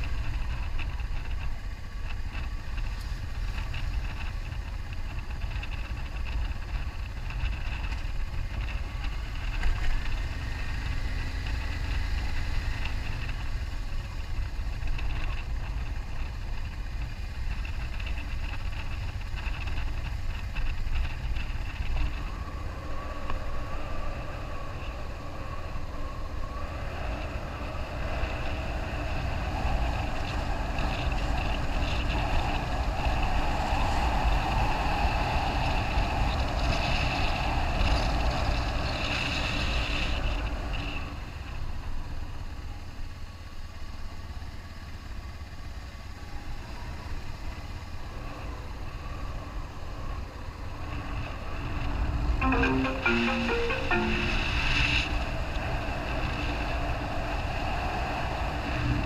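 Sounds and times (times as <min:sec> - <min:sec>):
wind noise on microphone: 0:00.0 - 0:41.8, 0:54.5 - 0:59.0.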